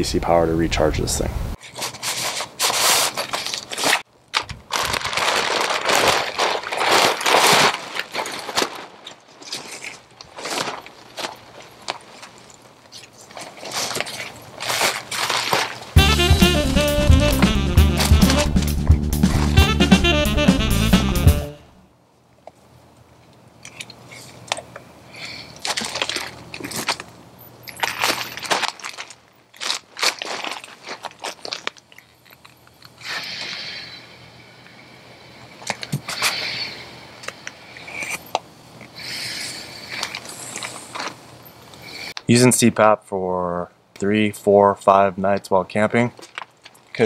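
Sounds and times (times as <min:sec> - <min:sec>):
nylon fabric rustling: 0:01.6 - 0:16.0, 0:27.7 - 0:32.6
tent frame snapping: 0:01.7 - 0:16.0
background music: 0:16.0 - 0:21.8.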